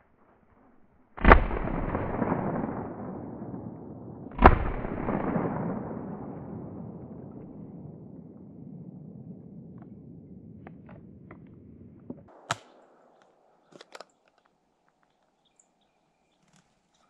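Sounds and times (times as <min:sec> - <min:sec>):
gunshot echo rolling through forest: 0:00.1 - 0:14.1
shotgun shots: 0:01.2 - 0:07.7, 0:12.3 - 0:13.6.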